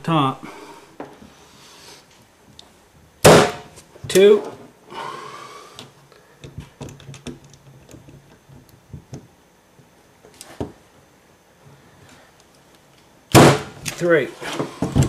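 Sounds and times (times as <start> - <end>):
brad nailer firing: 3.2 - 3.7, 13.3 - 13.9.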